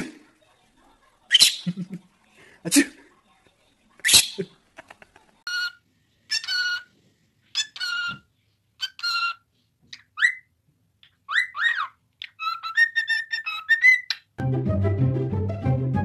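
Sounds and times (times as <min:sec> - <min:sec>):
parrot buzzy chirps: 0:01.3 - 0:01.9, 0:04.0 - 0:04.5, 0:05.5 - 0:06.9, 0:07.5 - 0:08.2, 0:08.8 - 0:14.4
cockatiel whistling: 0:10.2 - 0:10.5.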